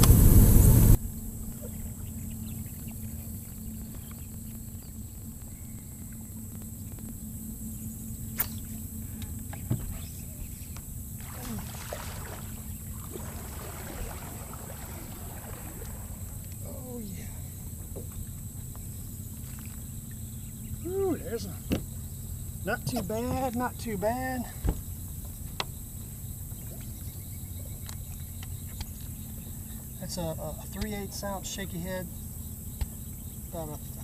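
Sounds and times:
electric motor hum: 0:00.0 - 0:23.7
sharp click: 0:08.4 - 0:08.7.

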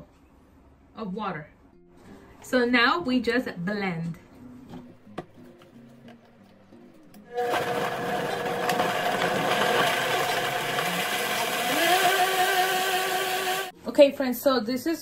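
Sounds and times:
blender motor running: 0:07.3 - 0:13.7.

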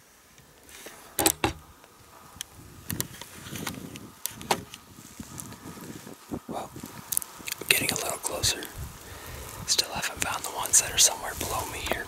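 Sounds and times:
camera handling knocks and clicks: 0:01.2 - 0:01.6.

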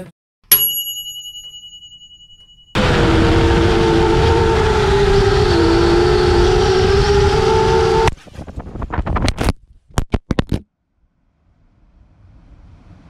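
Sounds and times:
drone propellers whining: 0:02.8 - 0:08.2
drone crashing and tumbling: 0:02.8 - 0:09.2
wind rush: 0:02.8 - 0:09.4.

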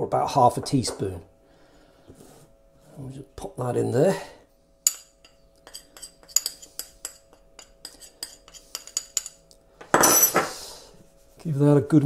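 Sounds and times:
teaspoon clinking on china dish: 0:04.9 - 0:09.4.

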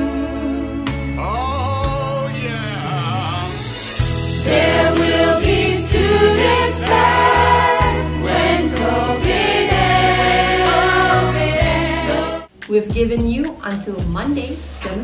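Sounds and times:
women singing: 0:00.0 - 0:01.0, 0:04.4 - 0:12.5
man singing into a microphone: 0:01.1 - 0:03.7
instrumental accompaniment: 0:01.9 - 0:13.8.

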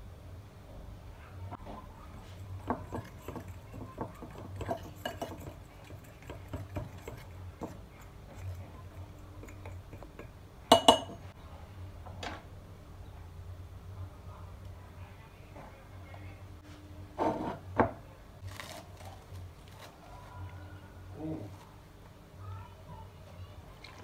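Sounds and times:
spoon stirring flour in glass bowl: 0:01.8 - 0:11.2
spoon clinking on glass: 0:02.6 - 0:07.8, 0:09.4 - 0:11.2.

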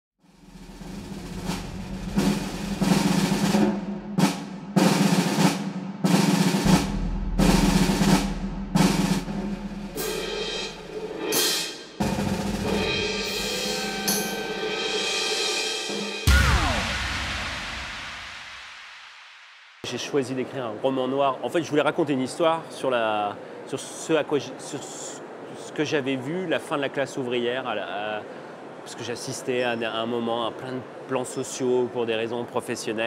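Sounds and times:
heavy drum strikes: 0:00.4 - 0:19.8.

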